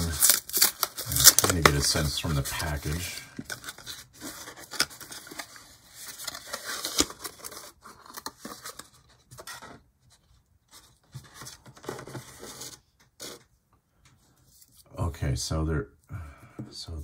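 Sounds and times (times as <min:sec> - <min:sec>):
cardboard box tearing and rustling: 0:00.0 - 0:09.7.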